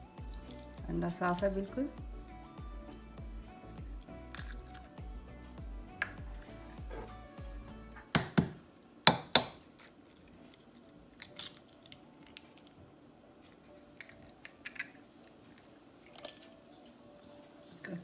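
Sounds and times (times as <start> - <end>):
eggshells cracking on bowl: 4.3 - 4.9, 9.3 - 12.8, 14.0 - 16.9
shell being pulled apart: 4.3 - 4.9.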